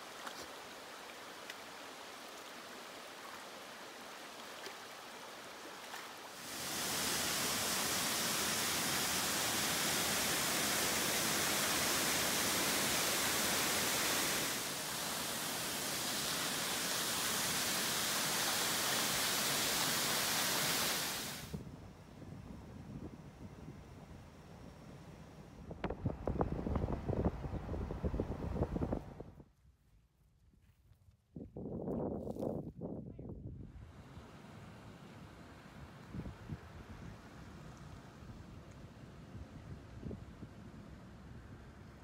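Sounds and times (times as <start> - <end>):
creek running over rocks: 0.0 - 21.4
waterfall roaring: 6.4 - 21.5.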